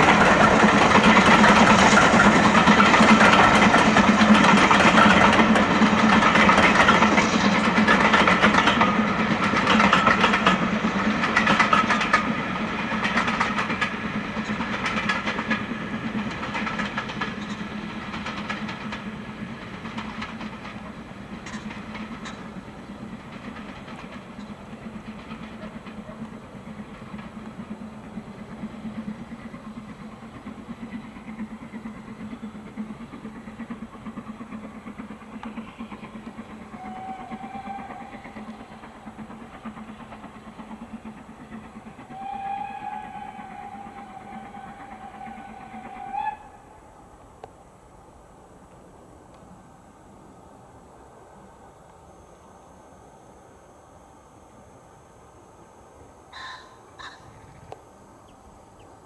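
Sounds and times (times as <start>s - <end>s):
train coaches running gear: 0.0s - 46.5s
steam locomotive exhaust beats: 0.0s - 59.0s.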